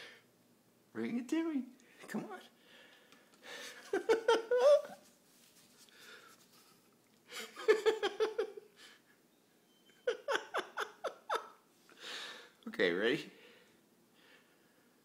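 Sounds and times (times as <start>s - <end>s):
person laughing: 3.6s - 5.0s, 7.3s - 8.7s, 10.0s - 11.6s.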